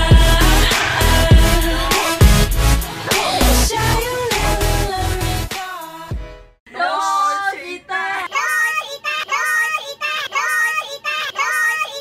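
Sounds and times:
child singing a looped phrase: 0:06.7 - 0:12.0.

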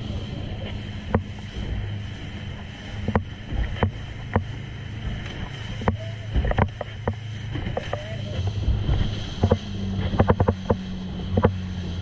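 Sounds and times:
hull slapping against waves: 0:00.0 - 0:12.0
motorboat engine droning: 0:00.0 - 0:12.0
rush of wind and water: 0:00.0 - 0:12.0.

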